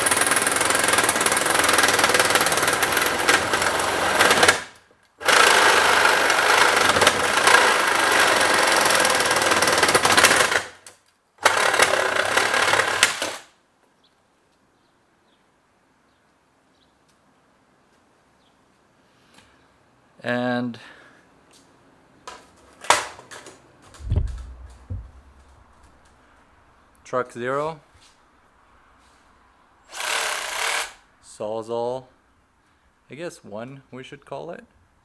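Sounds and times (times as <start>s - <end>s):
reciprocating saw cutting metal: 0.0s - 10.7s.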